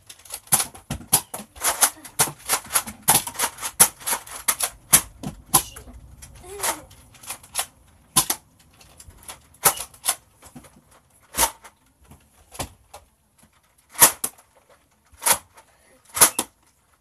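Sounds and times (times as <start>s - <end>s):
toy dart blasters popping: 6.6s - 8.4s, 9.6s - 10.2s, 16.1s - 16.5s.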